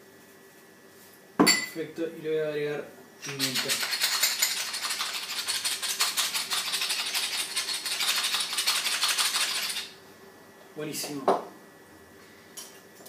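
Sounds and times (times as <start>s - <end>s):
pepper mill grinding: 3.2s - 10.0s.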